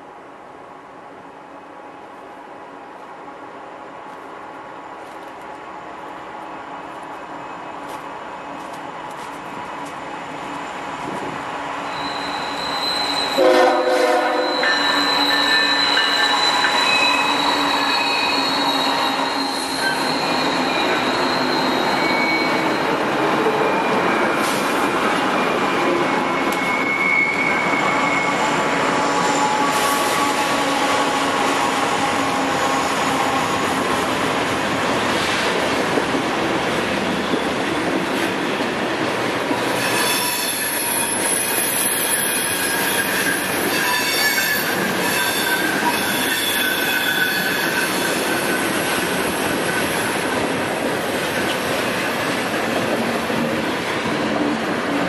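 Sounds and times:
diesel freight train passing: 0:00.1 - 0:55.0
steel wheels squealing: 0:11.8 - 0:33.6, 0:39.6 - 0:50.5
train horn blast: 0:13.3 - 0:16.0.

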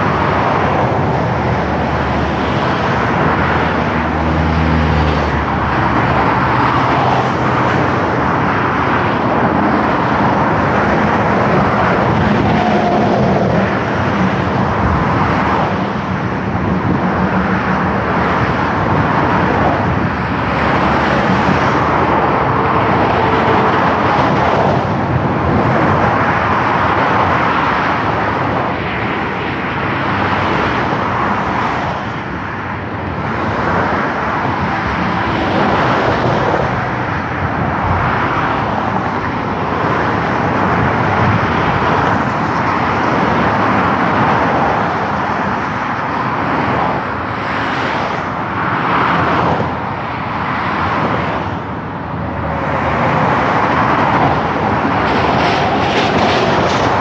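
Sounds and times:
cars and lorries passing at speed: 0:00.0 - 0:57.0.

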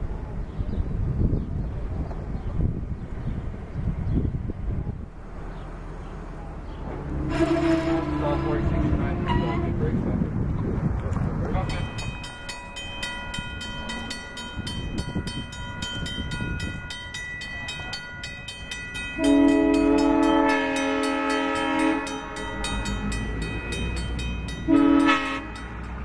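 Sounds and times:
diesel locomotive approaching: 0:00.0 - 0:26.0
locomotive horn blasts: 0:07.1 - 0:10.0, 0:19.2 - 0:26.0
level crossing bell ringing: 0:11.6 - 0:26.0.

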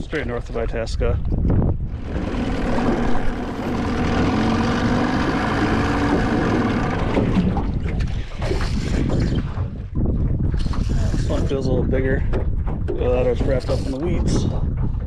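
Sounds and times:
wind: 0:00.0 - 0:15.0
outboard motor humming: 0:01.4 - 0:11.6.

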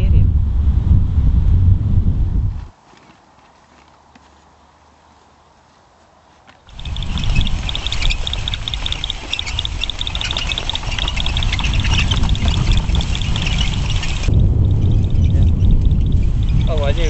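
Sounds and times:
high ticks: 0:06.7 - 0:17.0
metal-wheeled cart rattling over grass: 0:06.7 - 0:17.0.

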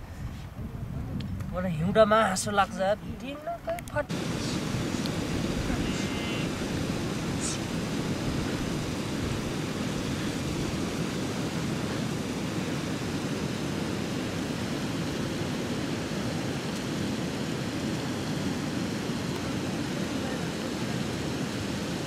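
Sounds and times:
steady low rushing noise: 0:04.1 - 0:15.6.

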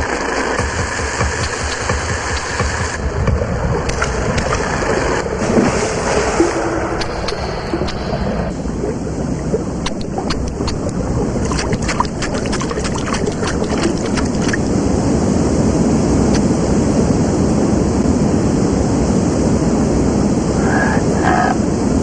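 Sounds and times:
rushing river water: 0:00.0 - 0:16.6.

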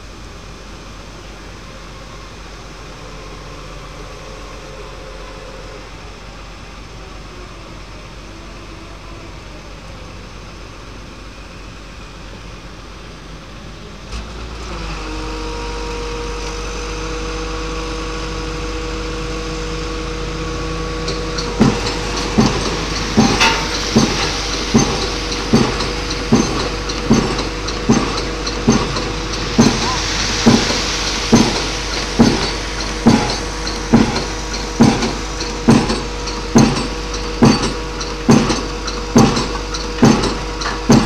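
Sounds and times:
piling rig engine running: 0:00.0 - 0:41.0
hydraulic hammer striking pile: 0:20.4 - 0:41.0.

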